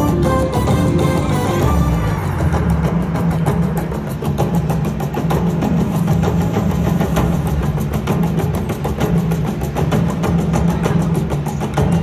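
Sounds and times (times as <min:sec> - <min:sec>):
electronic slot machine music: 0:00.0 - 0:02.4.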